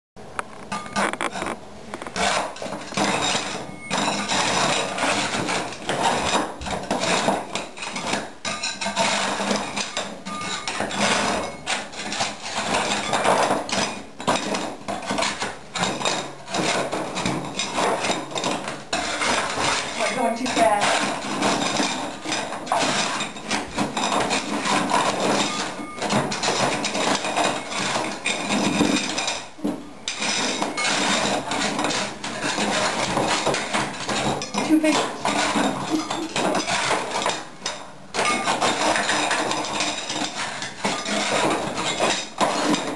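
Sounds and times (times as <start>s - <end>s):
metal scraper scraping floor: 0.5s - 42.9s
ceramic tiles clinking: 30.1s - 42.9s.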